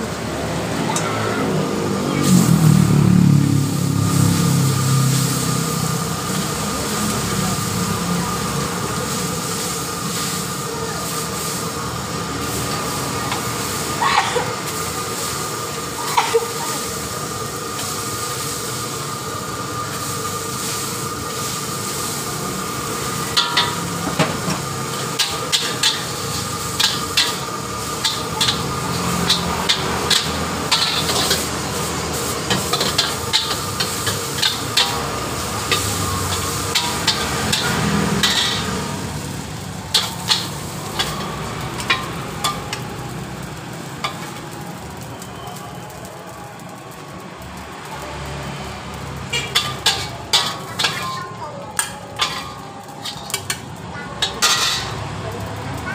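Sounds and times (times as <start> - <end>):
noodles sizzling in wok: 0.0 - 55.9
metal spatula scraping wok: 11.4 - 17.1, 19.9 - 42.9, 49.2 - 55.3.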